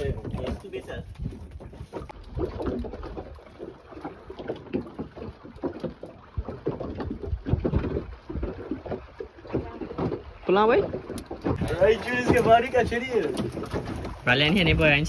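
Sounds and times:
wind on microphone: 0.0 - 3.5, 6.3 - 15.0
water slapping boat hull: 0.0 - 15.0
knocks and thumps: 4.4 - 15.0.

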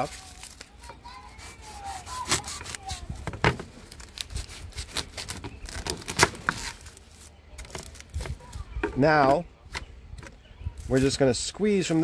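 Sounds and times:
knife crunching through corn husk: 0.0 - 8.4.

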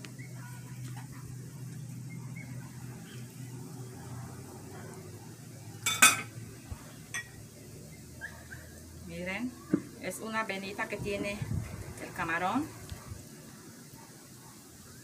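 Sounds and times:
knife clinking against plate: 5.9 - 6.3.

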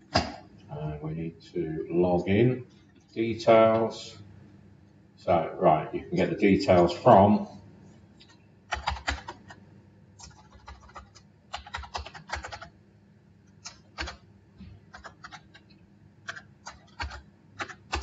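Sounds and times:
keyboard typing: 8.2 - 9.6, 10.2 - 12.7, 13.5 - 14.2, 14.9 - 18.0.

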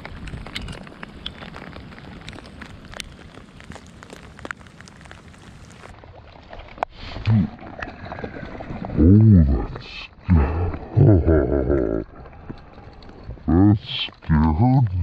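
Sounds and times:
raindrops hitting camera: 0.0 - 6.0, 6.7 - 15.0
rain hissing on pond: 0.0 - 15.0
low vocal grunt: 7.2 - 7.6, 9.0 - 12.2.

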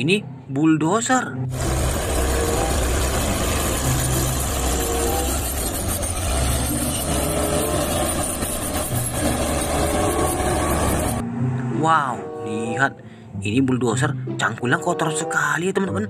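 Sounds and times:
bulldozer diesel engine running: 1.5 - 11.2.

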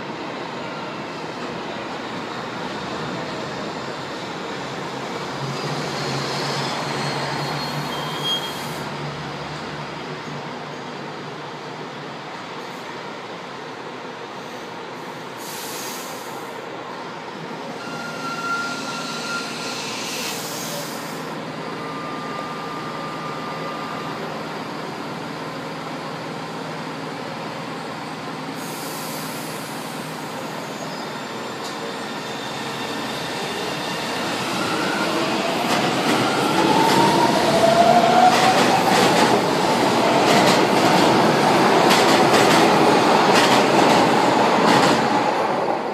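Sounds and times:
train running: 25.5 - 45.9.

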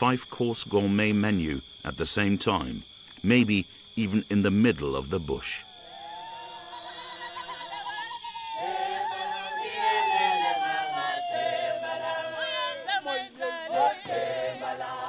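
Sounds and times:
group singing a cappella: 6.1 - 15.0.

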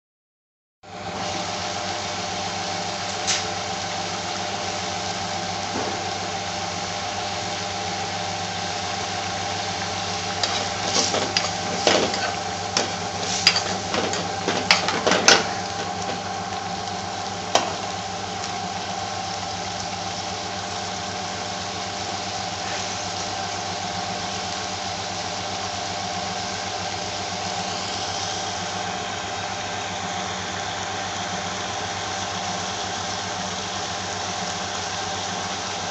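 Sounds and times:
curry simmering in a pan: 1.2 - 35.9
steady hum: 3.7 - 24.5
metal spoon scraping a pan: 10.4 - 16.2.

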